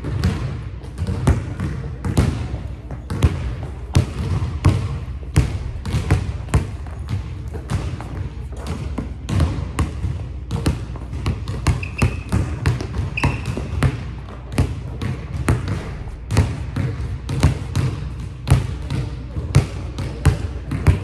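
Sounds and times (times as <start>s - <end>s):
basketball bouncing on hardwood floor: 0.0s - 21.0s
sneakers squeaking on floor: 5.9s - 14.4s.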